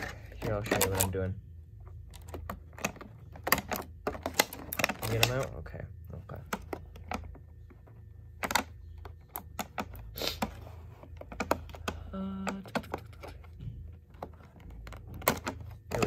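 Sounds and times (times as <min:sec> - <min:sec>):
low steady hum: 0:00.0 - 0:16.0
stiff plastic clicking and crackling: 0:02.0 - 0:05.7, 0:08.3 - 0:16.0.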